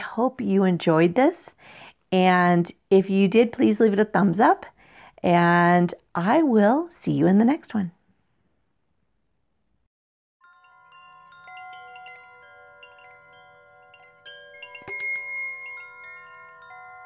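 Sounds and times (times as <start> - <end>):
wind chimes ringing: 10.4 - 17.0.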